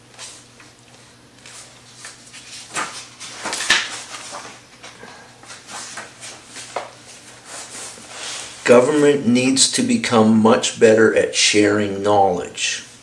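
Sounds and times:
book pages turning: 1.4 - 9.1.

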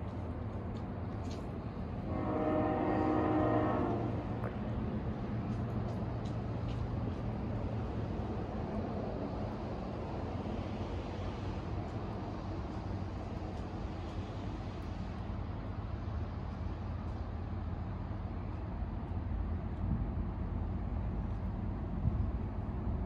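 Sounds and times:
freight train rumble: 0.0 - 23.0
train horn: 2.0 - 4.4.

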